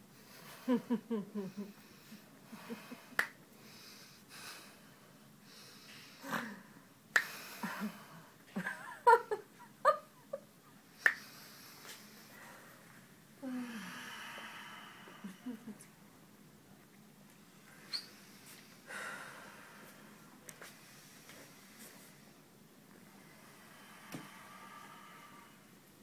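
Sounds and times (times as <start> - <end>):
sharp finger snaps: 3.2 - 3.4, 7.1 - 7.4, 11.0 - 11.3.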